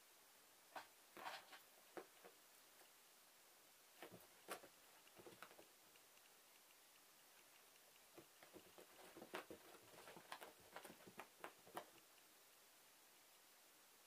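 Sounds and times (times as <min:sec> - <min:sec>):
cat paws scrabbling on rug: 0:00.8 - 0:02.4, 0:04.0 - 0:05.7, 0:08.2 - 0:12.0.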